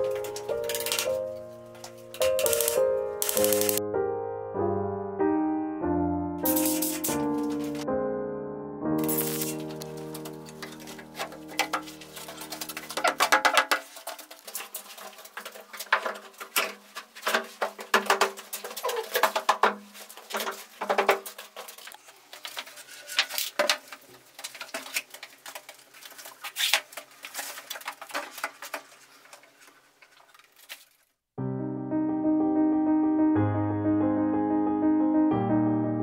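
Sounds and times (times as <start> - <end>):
wall panels knocking and scraping: 10.0 - 30.3.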